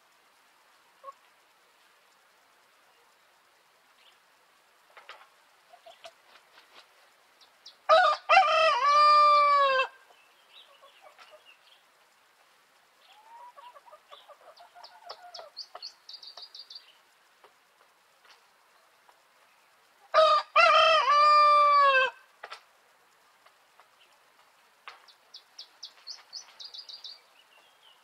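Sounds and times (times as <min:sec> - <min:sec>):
chickens clucking: 0:01.0 - 0:01.3, 0:04.9 - 0:06.9, 0:08.8 - 0:11.6, 0:13.0 - 0:16.6
rooster crowing: 0:07.9 - 0:10.0, 0:20.1 - 0:22.2.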